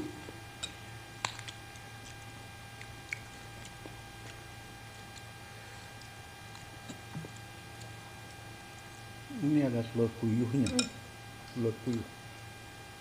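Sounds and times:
soft chewing mouth sounds: 0.0 - 9.6
low electrical hum: 0.0 - 13.0.

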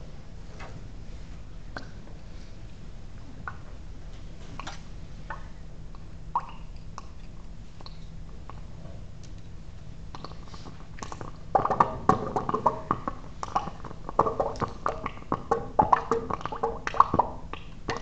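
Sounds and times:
gas bubbles popping in water: 4.6 - 7.2, 10.1 - 18.0.

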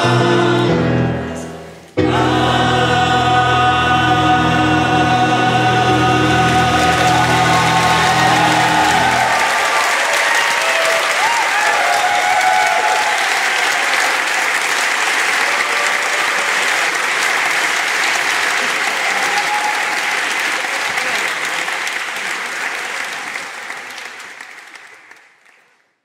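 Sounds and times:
audience applauding: 5.8 - 25.9.

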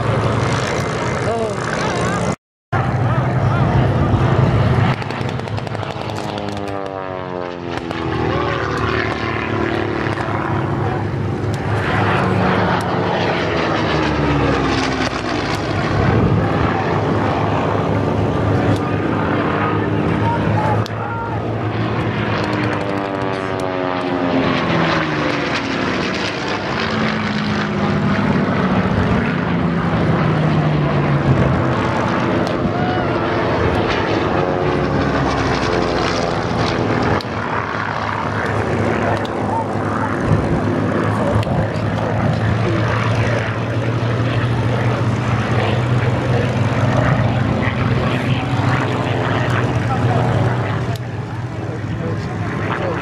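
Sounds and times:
propeller aircraft engine drone: 0.0 - 53.0.

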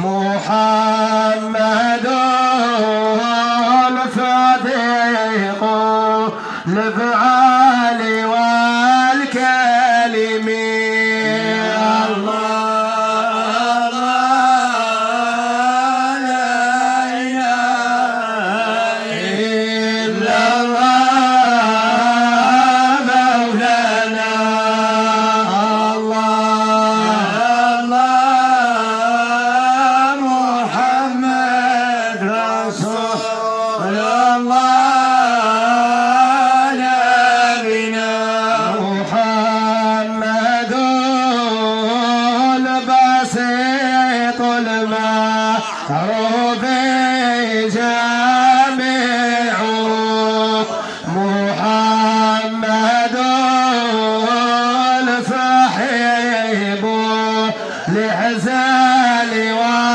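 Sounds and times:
man singing praise chant: 0.0 - 59.9.

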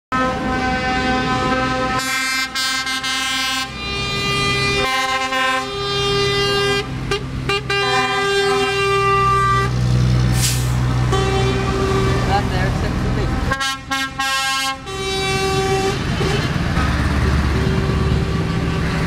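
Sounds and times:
lorry air horns: 0.1 - 9.8, 10.4 - 12.3, 13.5 - 16.5
diesel truck engines rumbling: 0.1 - 19.0.

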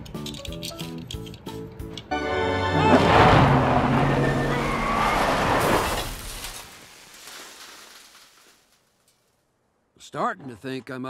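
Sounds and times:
truck engine and tyres on dirt: 0.0 - 9.5.

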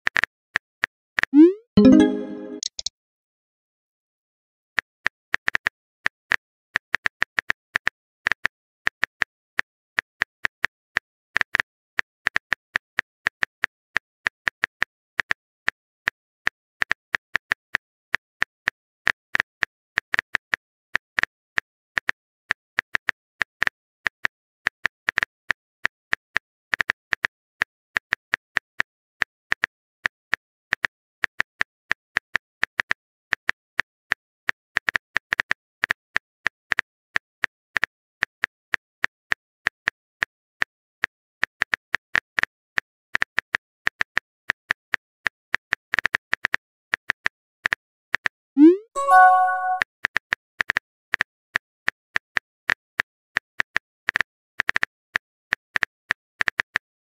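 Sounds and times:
phone keyboard typing clicks: 1.4 - 2.9, 48.6 - 49.8.

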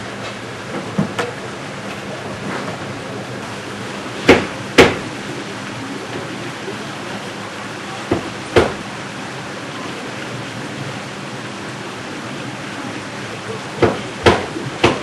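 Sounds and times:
steady rushing background noise: 0.0 - 15.0
axe chopping wood: 13.8 - 15.0.

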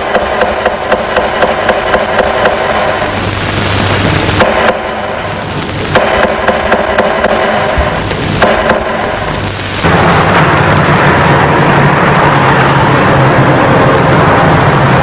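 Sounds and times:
sharp knocks: 0.0 - 2.9, 6.0 - 9.0
loud steady rushing din: 0.0 - 15.0
low hum: 0.0 - 15.0.

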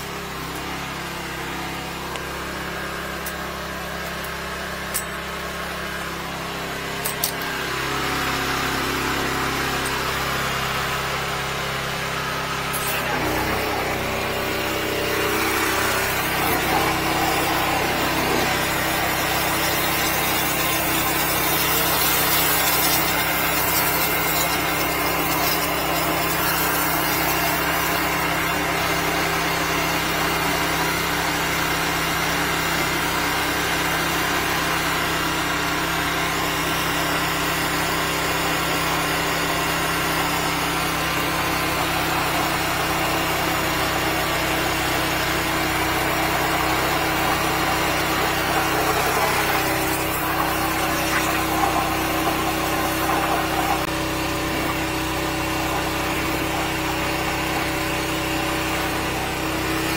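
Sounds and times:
drain jetter engine running: 0.0 - 59.9
water spray hissing: 14.5 - 28.1, 46.3 - 58.1.

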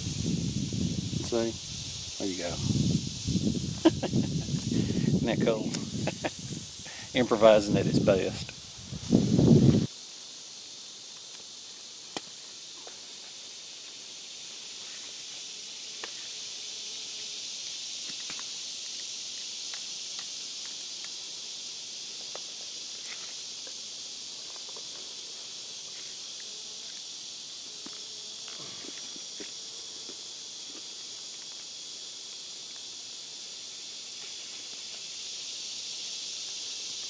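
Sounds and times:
rustling tent fabric and leaves: 0.0 - 16.4
insects chorus: 0.0 - 37.0.

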